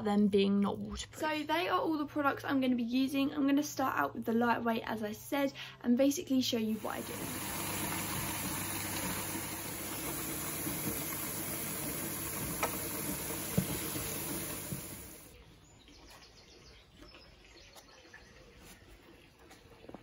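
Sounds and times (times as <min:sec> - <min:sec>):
tap water filling plastic bowl: 0:06.8 - 0:15.3.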